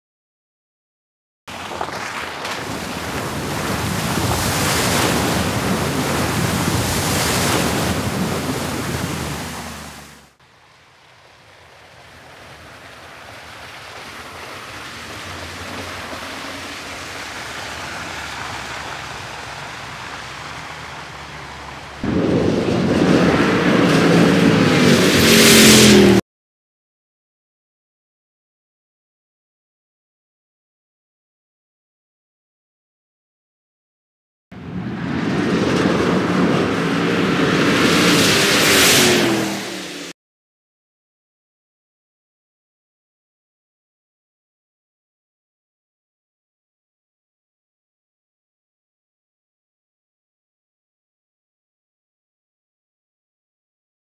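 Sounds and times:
water splashing: 0:01.5 - 0:26.2
car engine revving: 0:14.8 - 0:26.2, 0:35.0 - 0:40.1.

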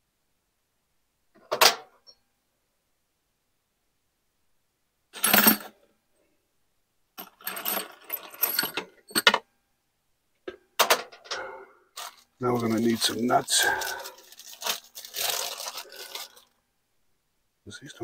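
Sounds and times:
metal bolts rattling in plastic jars: 0:07.2 - 0:09.4, 0:10.8 - 0:16.5.

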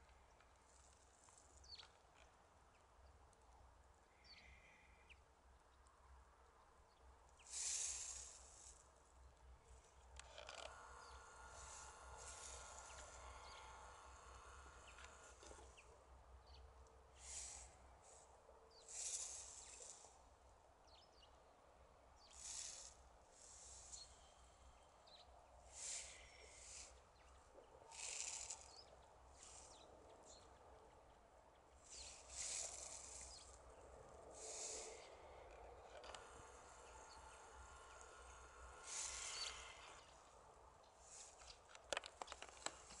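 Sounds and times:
small birds calling: 0:00.0 - 0:03.2, 0:04.0 - 0:05.9, 0:06.8 - 0:20.2, 0:22.1 - 0:43.0
faint steady hiss: 0:00.0 - 0:43.0
soft rush of noise: 0:00.0 - 0:43.0
dry reeds rustling in wind: 0:07.5 - 0:09.0, 0:25.6 - 0:27.0, 0:27.9 - 0:30.3, 0:31.8 - 0:43.0.

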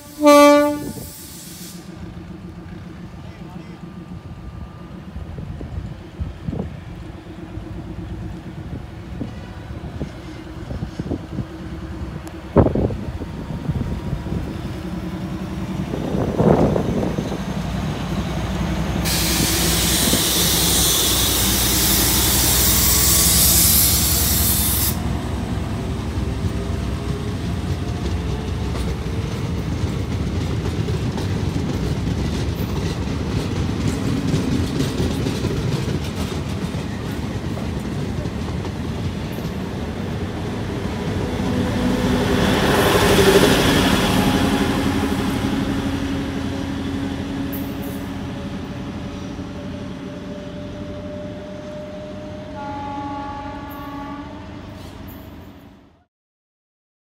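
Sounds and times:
train wheels rumbling: 0:00.0 - 0:55.7
passing train running noise: 0:00.0 - 0:56.1
loud hiss: 0:00.9 - 0:02.1, 0:19.0 - 0:25.1.

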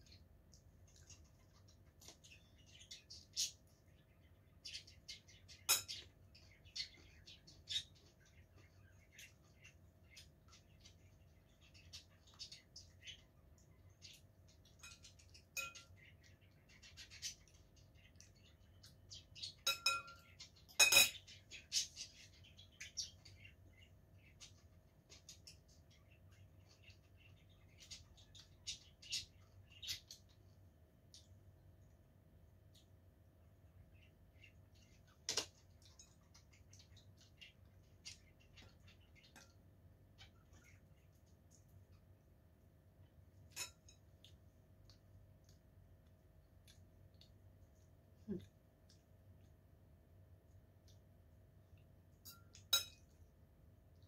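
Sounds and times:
faint clicks and taps: 0:00.0 - 0:04.1, 0:22.9 - 0:32.0, 0:43.0 - 0:53.2
cutlery clinking on ceramic bowl: 0:05.7 - 0:06.1, 0:14.8 - 0:15.9, 0:19.6 - 0:21.3, 0:43.5 - 0:44.1, 0:52.2 - 0:53.1
fork tapping ceramic bowl: 0:52.2 - 0:53.0.

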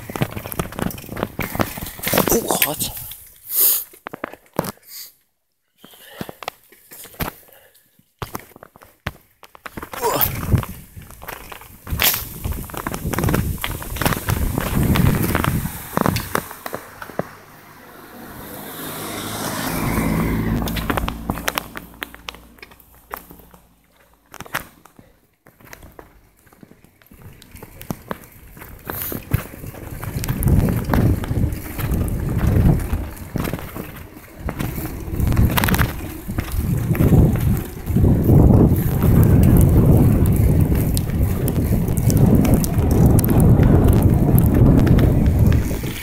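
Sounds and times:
wind buffeting microphone: 0:10.2 - 0:22.6, 0:28.0 - 0:46.0
vehicle driving past: 0:15.2 - 0:23.8.

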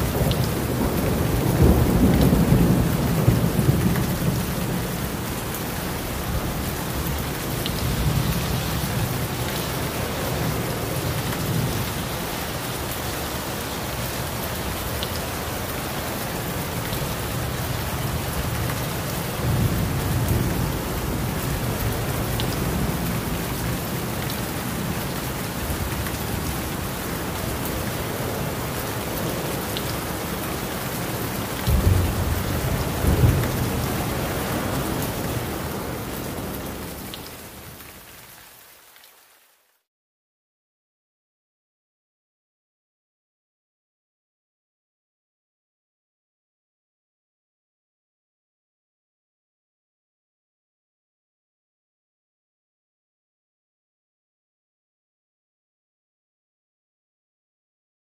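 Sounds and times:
thunder rumbling: 0:00.0 - 0:04.8, 0:31.6 - 0:36.8
heavy rain: 0:00.0 - 0:39.9.

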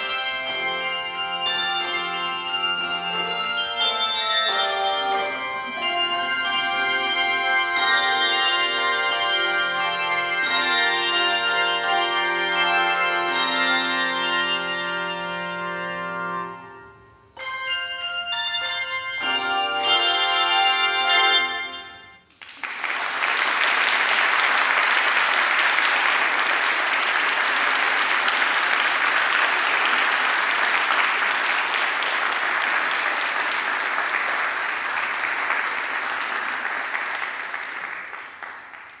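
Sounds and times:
handbells ringing chords: 0:00.0 - 0:22.2
audience applauding: 0:22.3 - 0:39.0.

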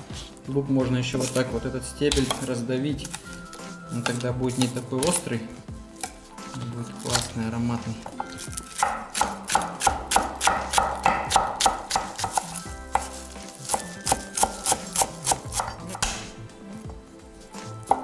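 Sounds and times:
knife chopping on wooden board: 0:02.1 - 0:03.3, 0:06.0 - 0:06.3, 0:08.0 - 0:16.4, 0:17.5 - 0:18.0.

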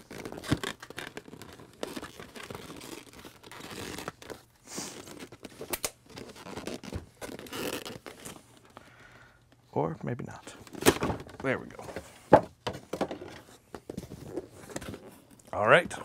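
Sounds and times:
box knocking: 0:10.9 - 0:13.4.

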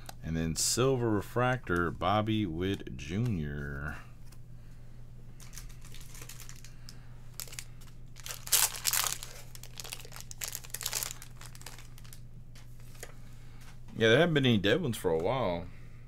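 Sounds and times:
steady low hum: 0:00.0 - 0:16.0
plastic wrappers crinkling: 0:05.4 - 0:12.2.

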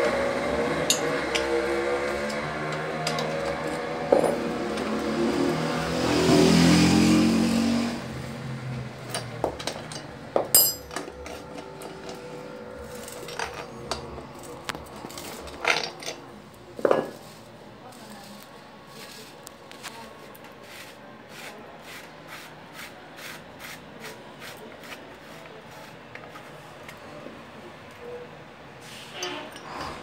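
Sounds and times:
metal tool clicks and knocks: 0:00.9 - 0:01.5, 0:09.1 - 0:12.2.

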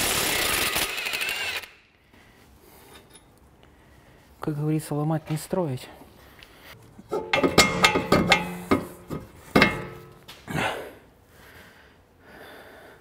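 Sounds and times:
metallic ringing: 0:07.1 - 0:10.3
metallic clanks and knocks: 0:07.1 - 0:10.4.

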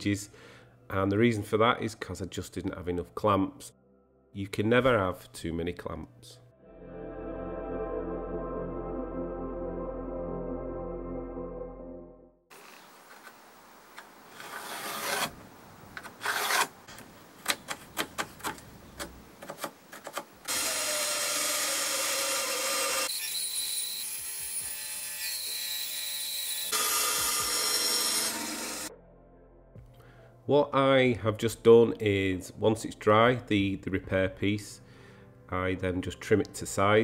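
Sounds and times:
bandsaw cutting wood: 0:14.3 - 0:15.4, 0:16.2 - 0:16.8, 0:20.5 - 0:28.9.

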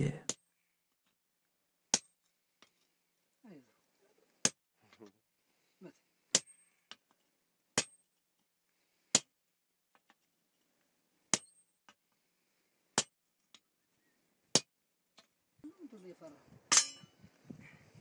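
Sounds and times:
hammer striking iron on anvil: 0:16.7 - 0:17.1.

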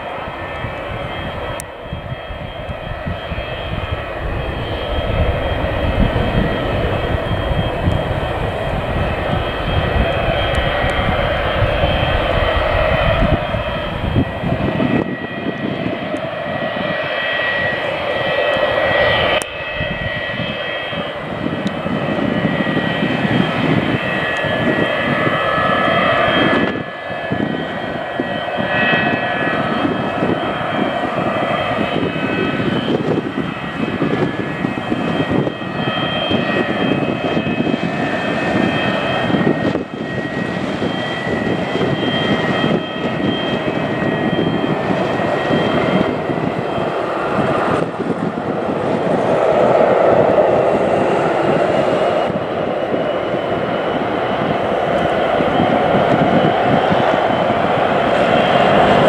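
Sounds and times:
jet engines roaring with whistling: 0:00.0 - 0:59.0.

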